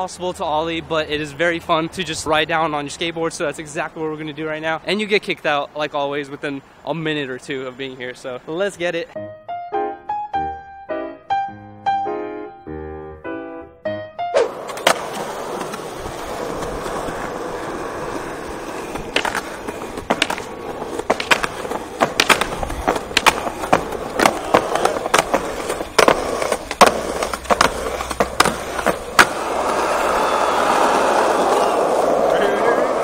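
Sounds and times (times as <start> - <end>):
skateboard wheels rolling on concrete: 0.0 - 9.3, 14.3 - 33.0
skateboard wheels clacking over joints: 14.4 - 33.0.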